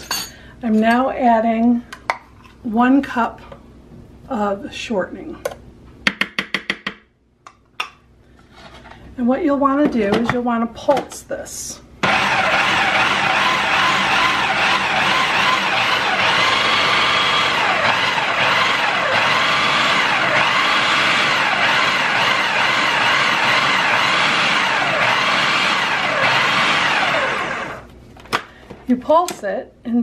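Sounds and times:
food processor running: 12.0 - 27.9.

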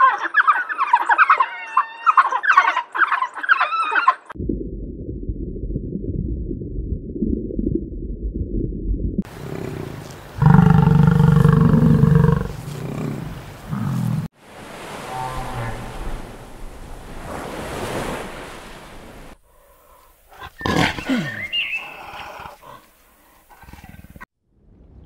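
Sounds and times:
wind: 0.0 - 4.4, 9.2 - 25.0
muffled low rumble: 4.4 - 9.2
bison bellowing: 9.3 - 14.3, 14.9 - 16.5
bison grunts: 9.3 - 14.3, 20.3 - 22.9
surf: 9.3 - 19.4.

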